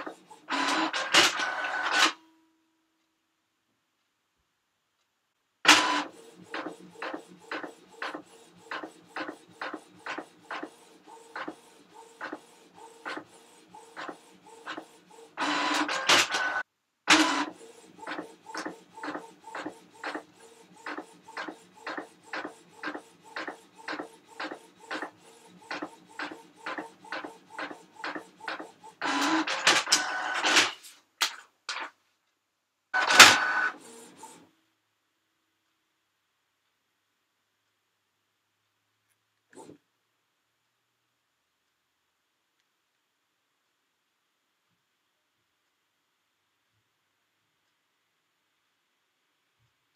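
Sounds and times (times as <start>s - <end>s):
printer printing: 0.0s - 2.2s, 5.7s - 30.9s, 33.0s - 34.5s.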